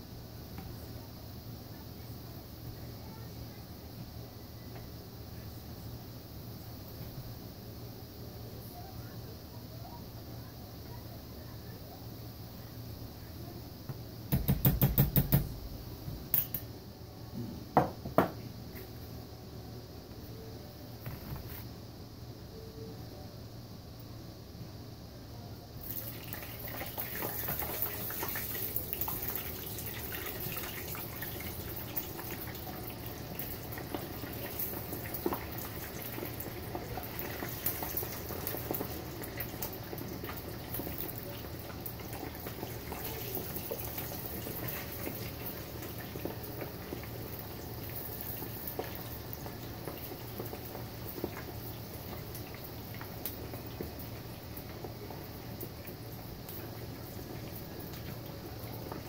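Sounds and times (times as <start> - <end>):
potatoes sizzling in hot oil: 25.7 - 59.0.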